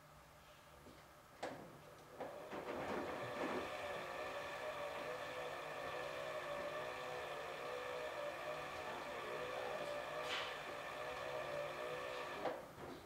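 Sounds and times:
washing machine motor whine: 2.2 - 12.6.

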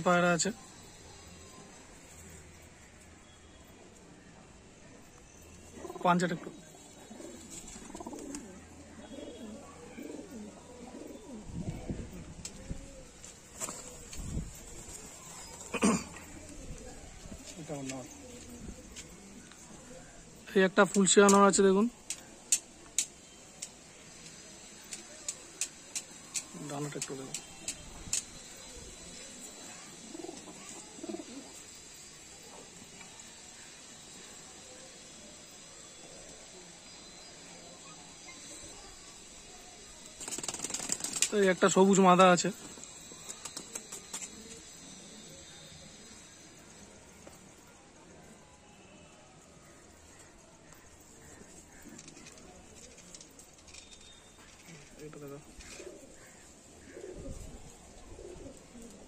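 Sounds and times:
pigeons cooing: 5.6 - 20.4, 22.0 - 41.4, 42.6 - 48.4, 49.3 - 59.0
pigeon cooing: 5.7 - 20.3, 27.3 - 32.8, 54.4 - 59.0.

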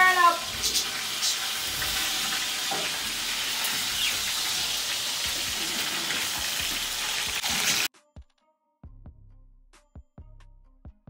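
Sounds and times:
food sizzling in frying pan: 0.0 - 7.9.

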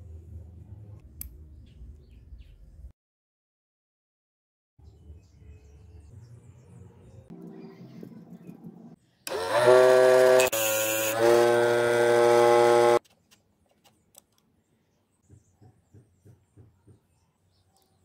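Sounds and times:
grinder motor whine: 9.3 - 13.0.

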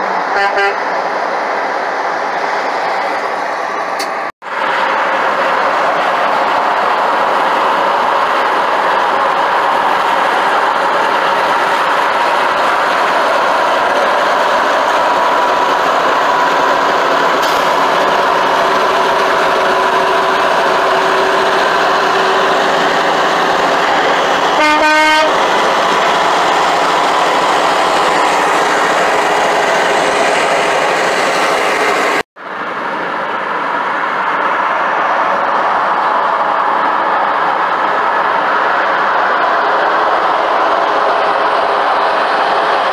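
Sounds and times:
truck air horn blast: 0.3 - 0.8, 24.6 - 25.4
road and wind noise in a car: 32.4 - 39.4.

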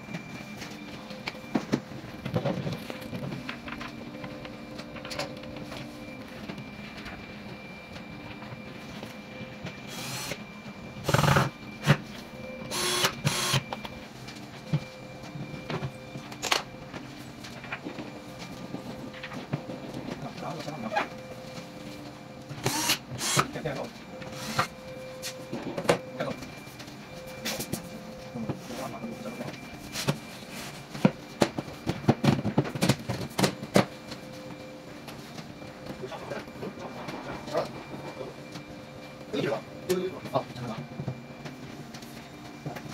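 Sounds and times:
cordless drill whirring: 9.9 - 10.4, 11.0 - 11.5, 12.7 - 13.7, 22.6 - 23.5, 24.4 - 24.7.

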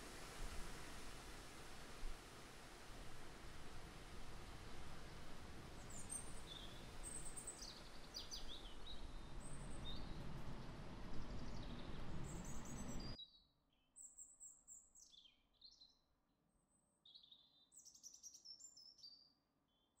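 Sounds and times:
steady background hiss: 0.0 - 13.2
small songbirds chirping: 5.7 - 16.0, 17.0 - 20.0.

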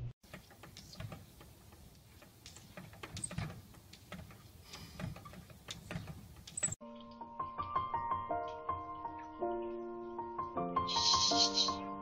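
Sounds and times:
light taps and clicks: 0.3 - 7.1.

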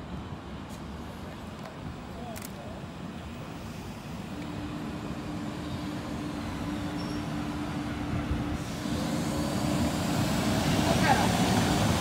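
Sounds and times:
light-rail train running: 0.0 - 12.0
hiss: 8.6 - 12.0.

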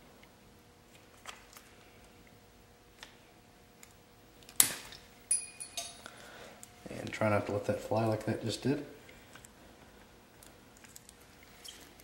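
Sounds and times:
metallic clink with ringing: 5.3 - 6.1.

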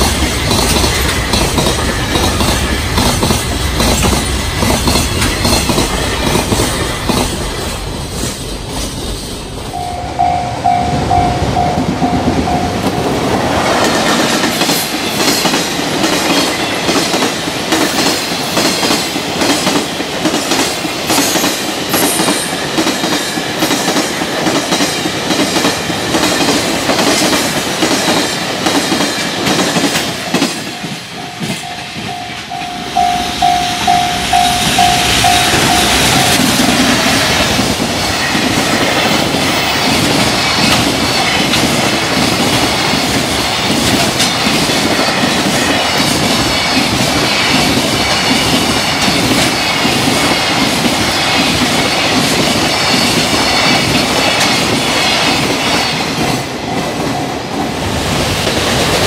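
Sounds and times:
train wheels clickety-clack: 0.0 - 9.9, 10.7 - 59.0
level-crossing warning bell: 9.3 - 15.6, 28.9 - 41.7, 42.8 - 57.7.

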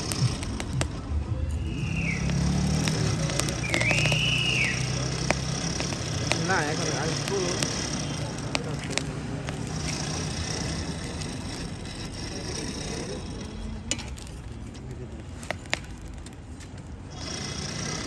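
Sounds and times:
sharp clicks: 0.0 - 11.7
engine running: 0.0 - 14.3.

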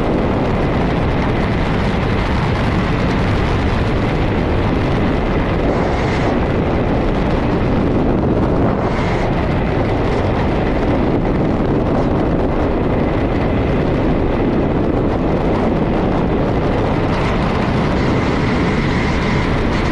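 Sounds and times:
freefall airflow rush: 0.0 - 19.9.

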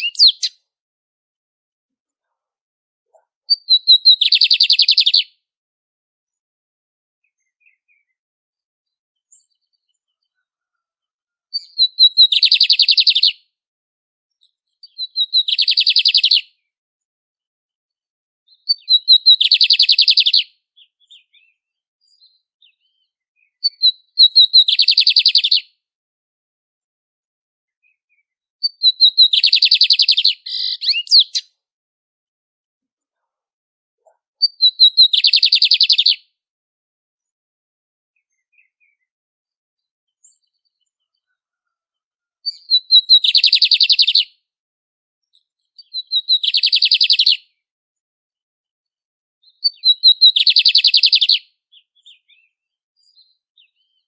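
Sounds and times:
bird singing with rattling trill: 0.0 - 0.6, 3.5 - 5.3, 11.6 - 13.4, 14.4 - 16.5, 18.5 - 25.7, 27.9 - 31.4, 34.4 - 36.2, 42.5 - 44.3, 45.4 - 47.4, 49.4 - 54.0.

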